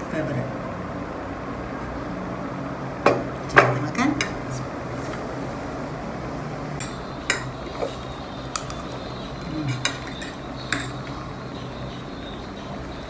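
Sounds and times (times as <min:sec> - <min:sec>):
cutlery clinking on ceramic plate: 0:09.7 - 0:11.2.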